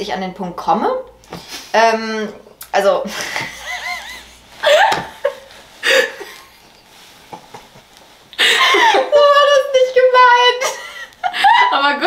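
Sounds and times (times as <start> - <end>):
women laughing: 3.1 - 6.5, 8.4 - 9.6, 10.5 - 12.0.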